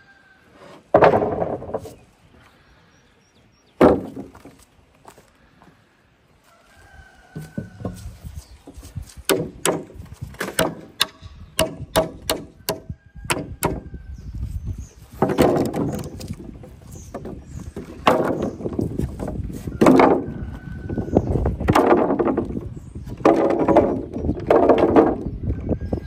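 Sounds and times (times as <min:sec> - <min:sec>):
sharp knocks and clatter: 0:00.9 - 0:02.0, 0:15.1 - 0:16.5, 0:21.6 - 0:25.3.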